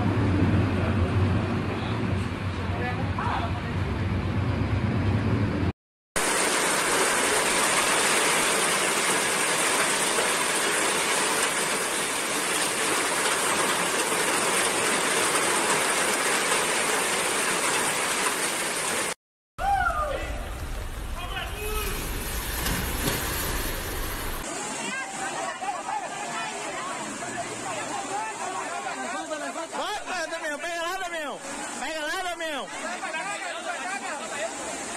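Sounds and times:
floodwater rushing: 0:06.2 - 0:19.2, 0:19.8 - 0:30.4, 0:31.4 - 0:34.9
heavy rain pouring: 0:06.2 - 0:19.2, 0:19.9 - 0:24.6.

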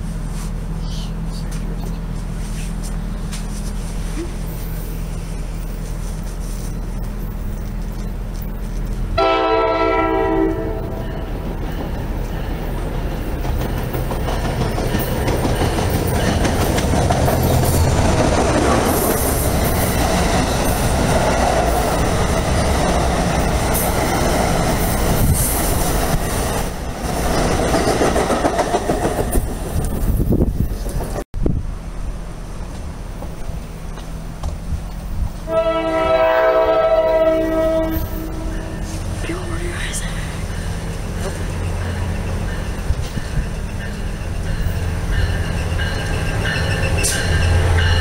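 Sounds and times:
train wheels on rails: 0:00.0 - 0:48.0
train horn blast: 0:09.2 - 0:11.2, 0:35.4 - 0:39.0.

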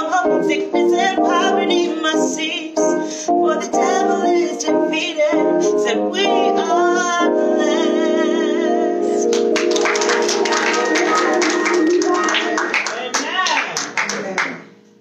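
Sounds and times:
woman singing gospel: 0:00.0 - 0:09.3, 0:10.1 - 0:12.7
piano accompaniment: 0:00.0 - 0:15.0
hand clapping: 0:09.3 - 0:14.6.

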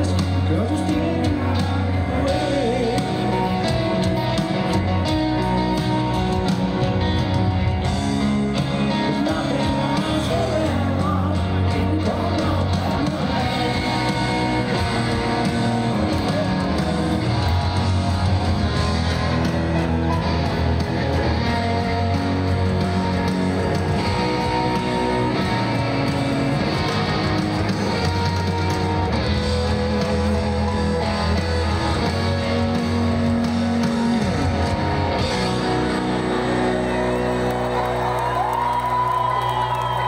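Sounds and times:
person singing: 0:00.0 - 0:04.8, 0:08.6 - 0:17.5
bass guitar: 0:00.0 - 0:40.0
electric guitar: 0:00.0 - 0:40.0
rock ballad over loudspeakers: 0:00.0 - 0:40.0.

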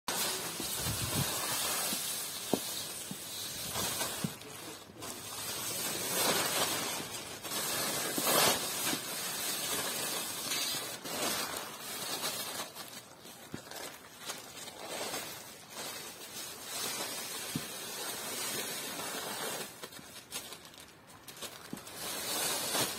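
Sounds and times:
plastic sheet crinkling: 0:00.1 - 0:22.9.

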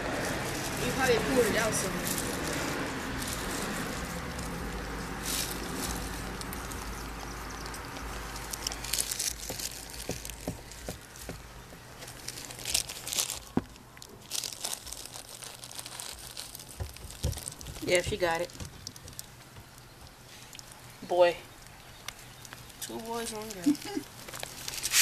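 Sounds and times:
cat licking and chewing: 0:00.0 - 0:11.2.

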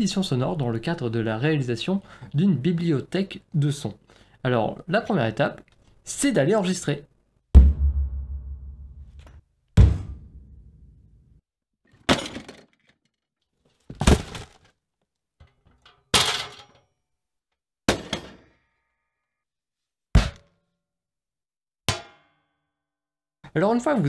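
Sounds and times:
fist knocking a bathtub: 0:09.8 - 0:10.4.

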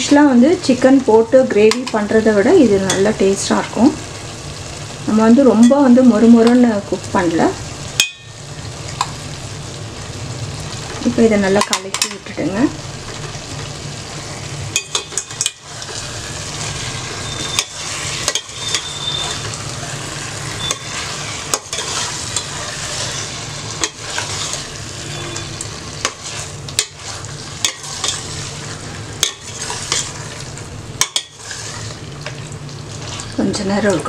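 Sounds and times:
gravy sizzling: 0:00.0 - 0:34.0
spatula scraping metal pot: 0:16.6 - 0:30.2, 0:31.0 - 0:32.0.

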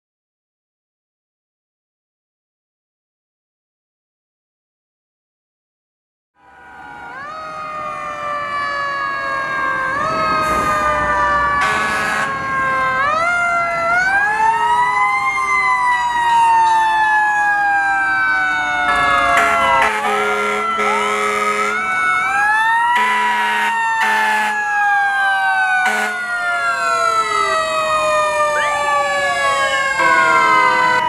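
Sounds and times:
fire truck sirens: 0:06.4 - 0:31.0.

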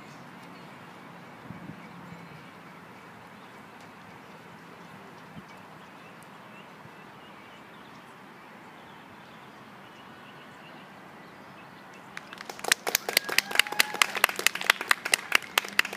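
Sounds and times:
outdoor background hiss: 0:00.0 - 0:15.9
spectators clapping: 0:12.2 - 0:15.9.

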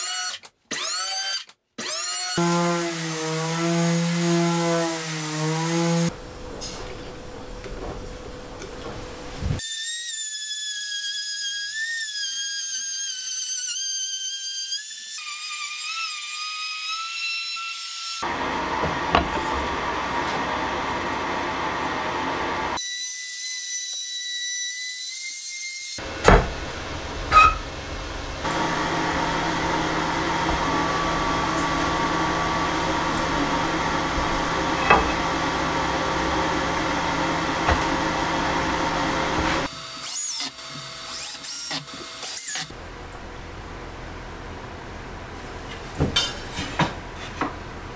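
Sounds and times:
router cutting wood: 0:00.0 - 0:06.1, 0:14.3 - 0:42.8
router whining: 0:00.7 - 0:06.1, 0:26.0 - 0:42.8
low motor hum: 0:02.4 - 0:09.6, 0:26.0 - 0:39.7.

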